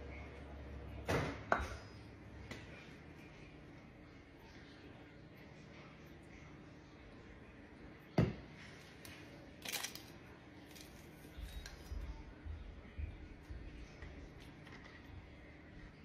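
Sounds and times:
straw wrapper tearing: 9.6s - 11.9s.

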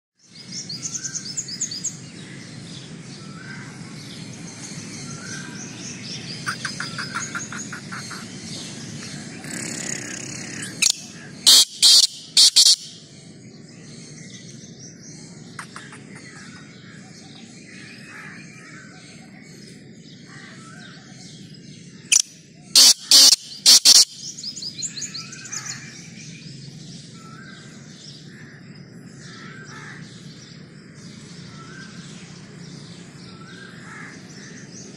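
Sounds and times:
small birds chirping and trilling: 0.2s - 34.9s
francolin calling: 6.4s - 8.4s, 9.0s - 13.1s, 22.1s - 26.0s.

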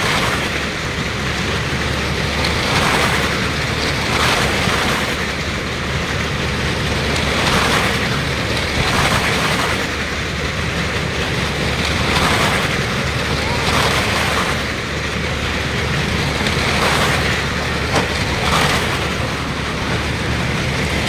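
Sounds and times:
vehicle engines running hard: 0.0s - 21.0s.

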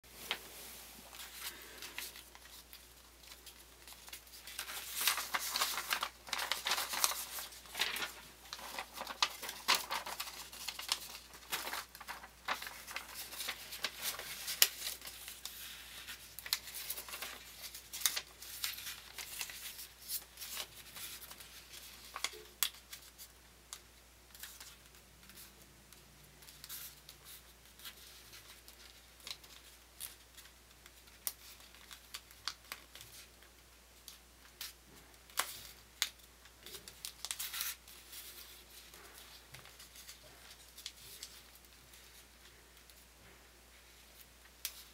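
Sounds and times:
paper rustling and crinkling: 0.1s - 25.6s, 26.4s - 44.9s
sharp clicks of paper creasing: 1.2s - 23.2s.

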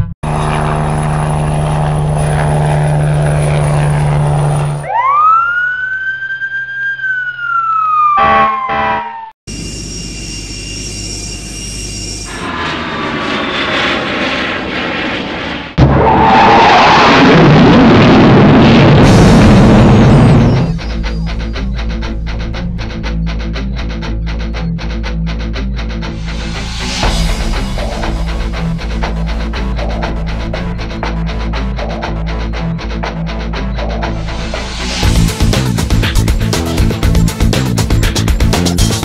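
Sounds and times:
siren wail: 0.2s - 21.9s
jet engine roar: 7.4s - 23.6s, 26.1s - 35.5s.

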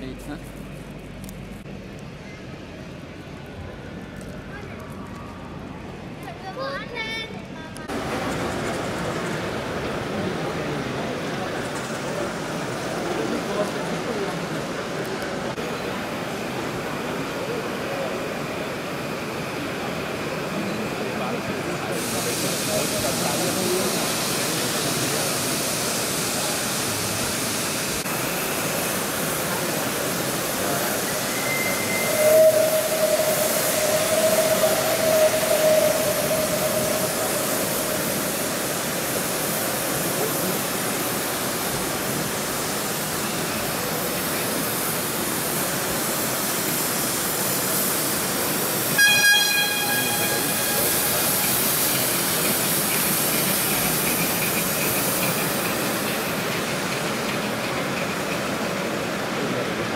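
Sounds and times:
steam locomotive hissing: 7.8s - 59.9s
steam whistle: 31.2s - 38.5s, 48.9s - 51.6s.

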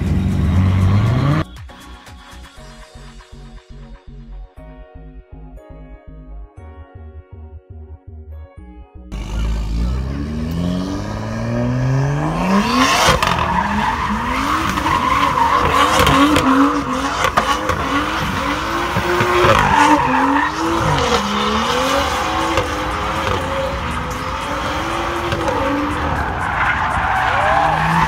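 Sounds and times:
car engine revving: 0.0s - 1.4s, 9.1s - 28.0s
tyres squealing: 12.3s - 28.0s.

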